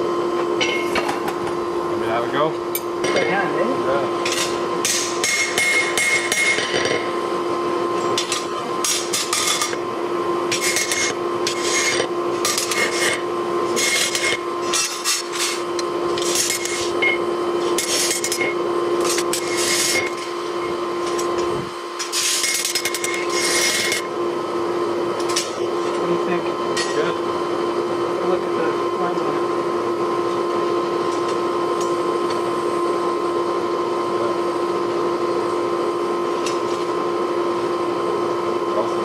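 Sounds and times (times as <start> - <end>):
steady hum: 0.0 - 39.0
hammer striking metal on anvil: 0.6 - 1.4, 4.2 - 6.8.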